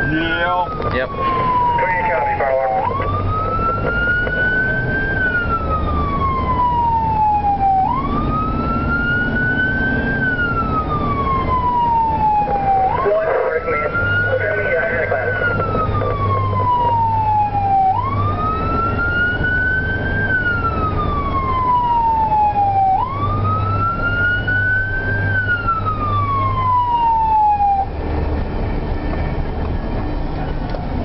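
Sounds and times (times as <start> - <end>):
emergency siren wailing: 0.0 - 31.0
engine and road noise: 0.0 - 31.0.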